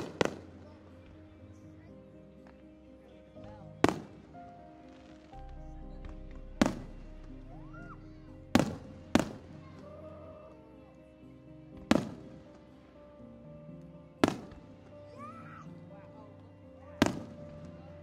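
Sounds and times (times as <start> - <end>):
music with sustained notes: 0.0 - 18.0
firework shells booming: 3.8 - 4.2, 6.6 - 7.1, 8.6 - 9.4.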